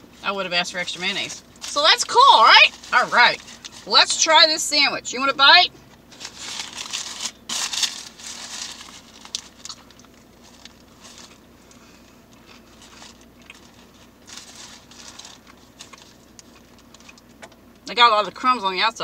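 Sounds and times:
paper wrapper crinkling: 0.2s - 4.2s, 6.0s - 11.8s, 12.4s - 17.2s
crunchy biting and chewing: 8.8s - 17.5s.

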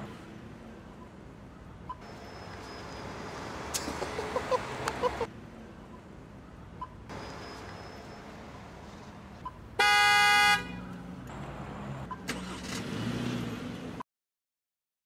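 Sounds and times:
street ambience: 0.0s - 14.0s
car horn blast: 9.8s - 10.8s.

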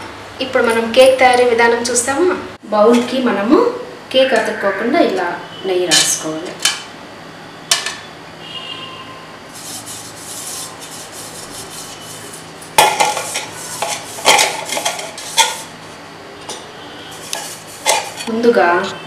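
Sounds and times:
fingers rubbing a pan: 9.6s - 15.7s.

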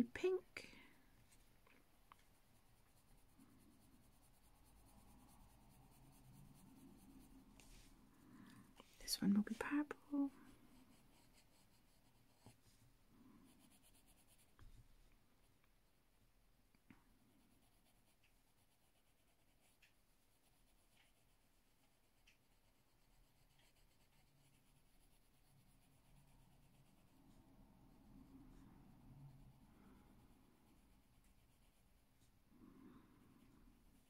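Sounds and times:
pencil scratching on paper: 2.3s - 8.0s, 9.4s - 12.6s, 13.4s - 14.6s, 17.5s - 32.4s.

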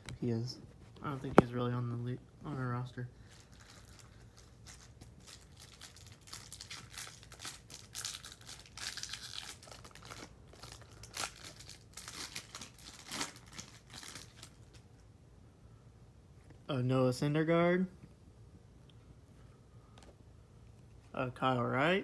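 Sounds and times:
foil wrapper crinkling and tearing: 3.2s - 14.8s.

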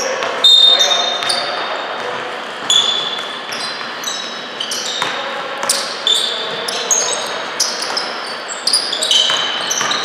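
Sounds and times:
sneakers squeaking on court: 0.0s - 10.0s
basketball bouncing: 4.9s - 5.8s, 9.1s - 10.0s.

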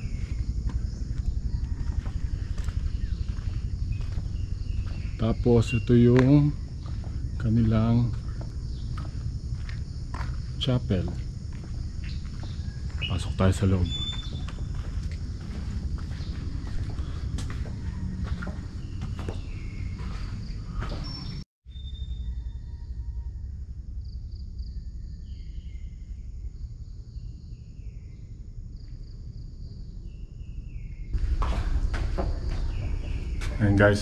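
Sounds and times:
low background rumble: 0.0s - 20.8s, 21.7s - 34.0s
footsteps: 0.0s - 21.1s, 31.2s - 34.0s.

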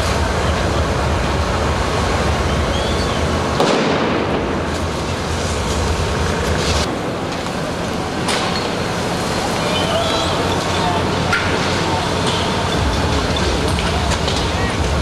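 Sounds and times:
loud bang: 0.0s - 9.0s
water cannon jet spraying: 0.0s - 15.0s
sharp cracks: 3.4s - 5.5s.

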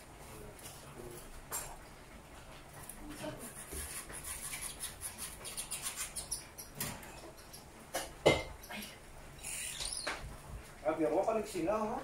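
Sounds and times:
finch singing: 9.4s - 10.2s.

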